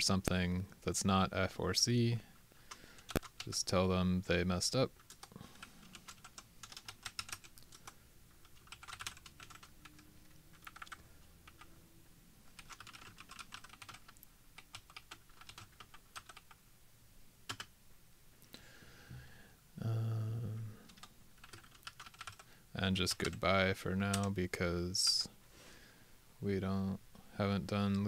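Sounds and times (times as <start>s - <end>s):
computer keyboard typing: 2.7s - 3.5s, 5.0s - 11.7s, 12.5s - 16.6s, 17.5s - 17.7s, 20.9s - 22.5s, 23.1s - 23.4s, 24.1s - 24.3s.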